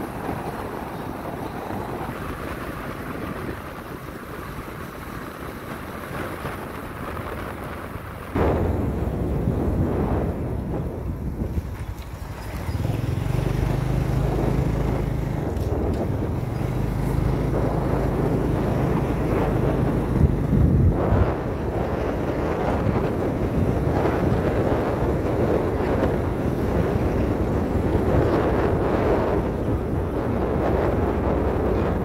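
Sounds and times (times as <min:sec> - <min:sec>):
road noise: 0:00.0 - 0:32.0
wind rushing over microphone: 0:00.0 - 0:32.0
motorbike engine running: 0:08.4 - 0:32.0.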